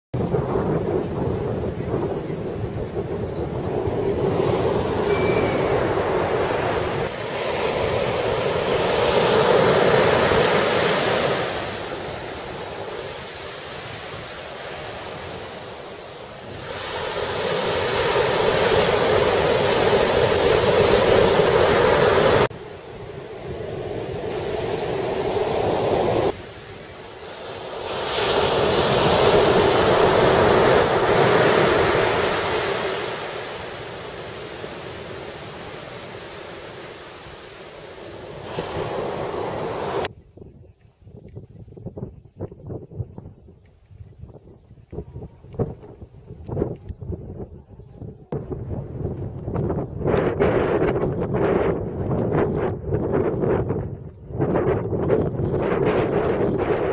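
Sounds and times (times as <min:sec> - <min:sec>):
surf breaking on beach: 0:00.2 - 0:40.1.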